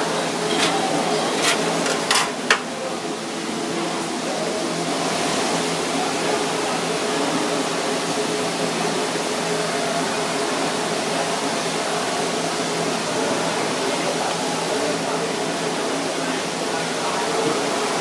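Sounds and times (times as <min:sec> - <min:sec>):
kitchen machinery rushing noise: 0:00.0 - 0:05.7.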